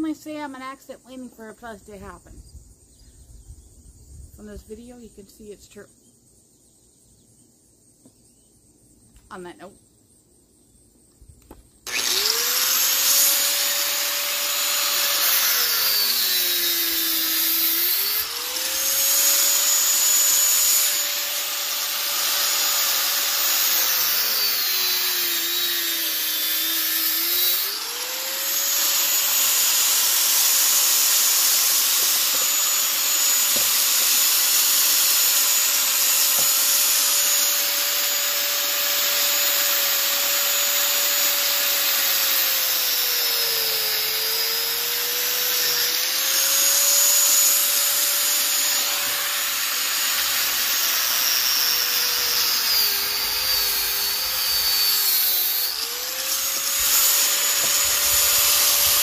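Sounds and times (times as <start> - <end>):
angle grinder cutting metal: 11.9 - 59.0.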